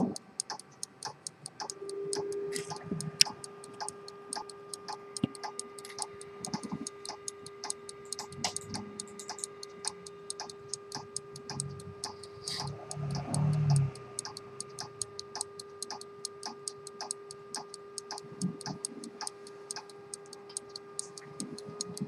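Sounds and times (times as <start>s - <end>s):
pocket watch ticking: 0.0s - 22.0s
steady hum: 0.0s - 22.0s.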